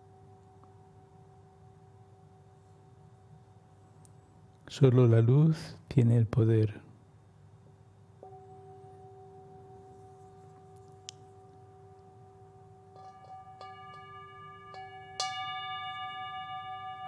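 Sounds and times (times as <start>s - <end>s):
steady held tone: 0.0s - 3.9s, 8.2s - 17.0s
bell-like struck notes: 8.2s - 17.0s.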